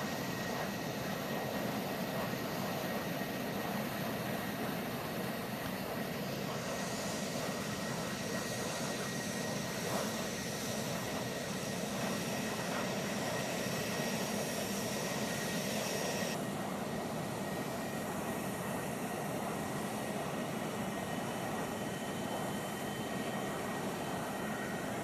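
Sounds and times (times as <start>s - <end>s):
jet engines roaring: 0.0s - 25.0s
high steady whine: 4.8s - 25.0s.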